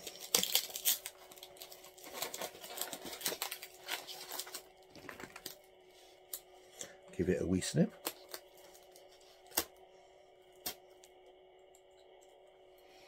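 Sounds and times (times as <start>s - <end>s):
cardboard crackling and rustling: 0.0s - 5.6s.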